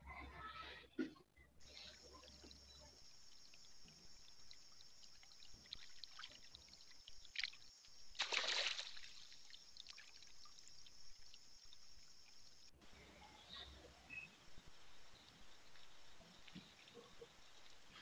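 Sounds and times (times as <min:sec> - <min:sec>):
steady high-pitched hiss: 0:01.6 - 0:18.0
splashing rustle: 0:03.5 - 0:12.7.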